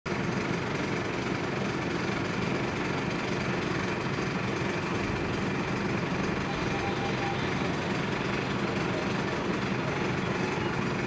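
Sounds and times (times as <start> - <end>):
fire truck engine running: 0.1 - 11.0.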